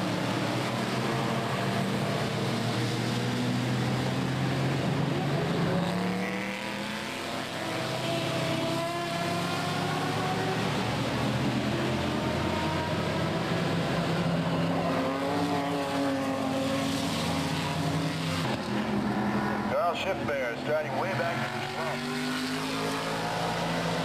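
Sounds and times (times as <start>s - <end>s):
racing car engines at high revs: 0.0s - 24.0s.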